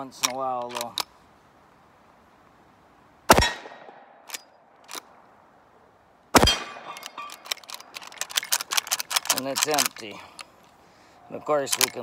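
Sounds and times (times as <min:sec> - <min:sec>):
rifle lever clicks: 0:00.2 - 0:01.1, 0:07.3 - 0:10.5, 0:11.7 - 0:12.0
rifle shots: 0:03.3 - 0:04.1, 0:06.4 - 0:07.1.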